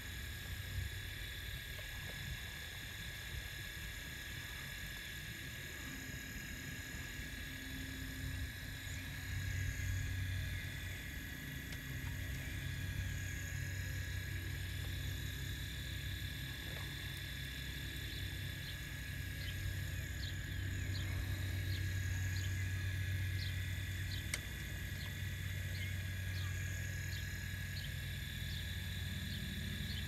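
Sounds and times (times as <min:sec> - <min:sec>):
hydraulic pump humming and whining: 0:00.0 - 0:30.0.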